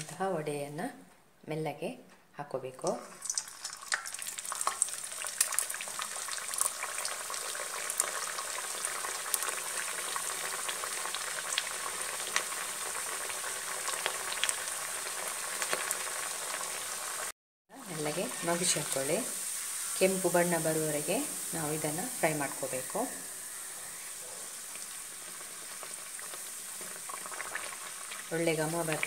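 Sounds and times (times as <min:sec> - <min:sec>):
dough deep-frying in hot oil: 0:02.9 - 0:29.0
oil crackling and popping: 0:03.1 - 0:17.3, 0:24.2 - 0:29.0.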